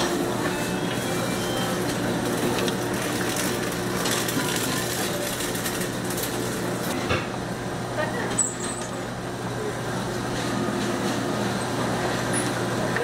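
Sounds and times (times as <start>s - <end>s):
meat cutting machine motor hum: 0.0s - 8.0s.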